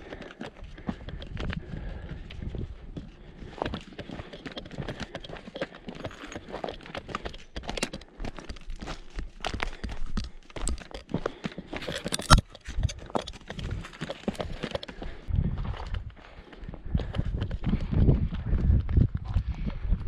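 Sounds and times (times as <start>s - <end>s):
trekking poles clicking on rock: 0.0s - 15.2s
footsteps crunching on stony ground: 0.0s - 20.0s.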